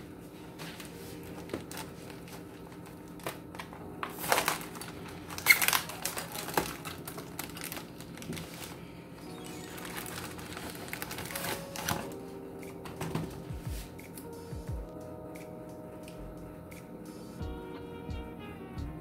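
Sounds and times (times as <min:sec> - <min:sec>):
plastic packaging crinkling: 0:00.8 - 0:12.2.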